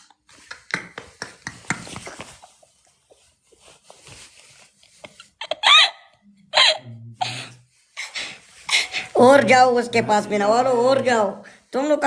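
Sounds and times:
man laughing hard: 5.4 - 7.5.

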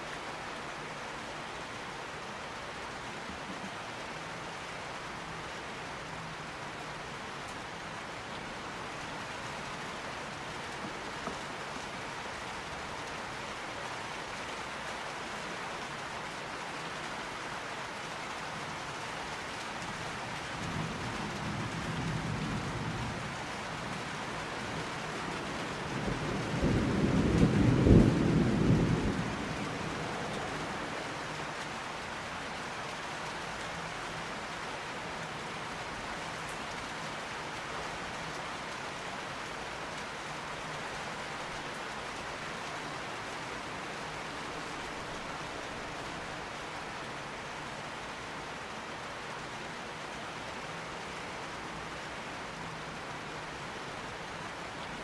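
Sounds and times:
steady rain falling: 0.0 - 55.0
thunder rumbling: 26.1 - 30.3.

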